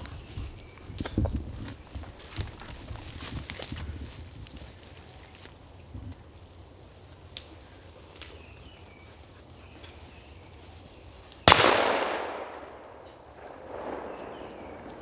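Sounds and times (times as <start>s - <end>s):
shotgun shot: 11.5s - 14.9s.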